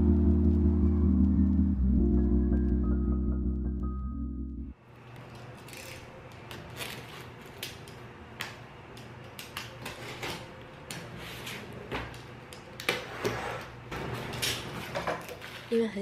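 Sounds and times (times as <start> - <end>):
low hum: 0.0 - 4.8
tape and cardboard crackling: 5.1 - 13.1.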